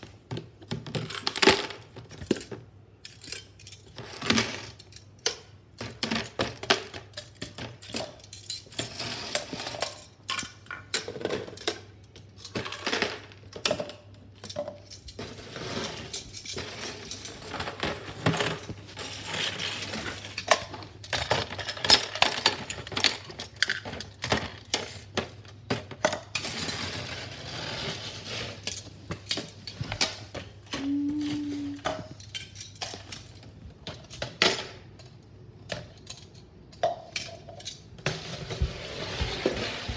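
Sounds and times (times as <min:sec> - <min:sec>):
plastic scraping on tile: 0:08.7 - 0:10.1, 0:15.2 - 0:32.0, 0:38.0 - 0:39.9.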